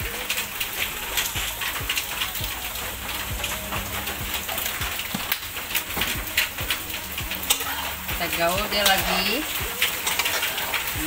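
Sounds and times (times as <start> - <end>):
bubbles popping and spitting: 0.0 - 8.2
sauce boiling hard in a wok: 0.0 - 11.0.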